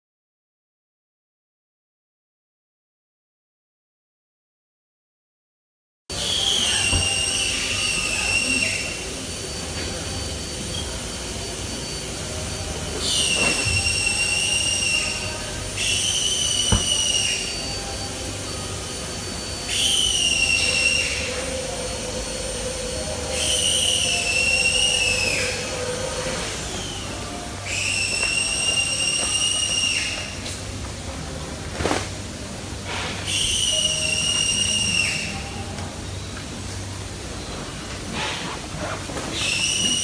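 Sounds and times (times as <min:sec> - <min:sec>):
steady low hum: 0:06.1 - 0:27.9
high whistling whine: 0:06.1 - 0:38.4, 0:39.3 - 0:40.0.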